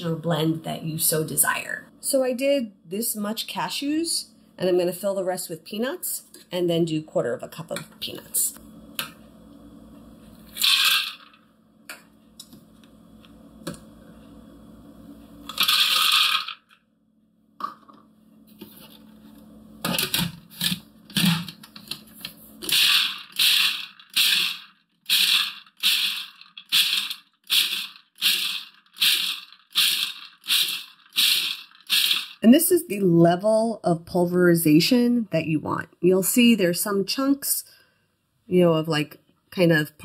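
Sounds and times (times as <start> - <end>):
food processor pulsing: 10.5 - 11.4, 15.5 - 16.8, 22.6 - 32.4
peanuts rattling into plastic bowl: 10.6 - 11.3, 15.5 - 16.6.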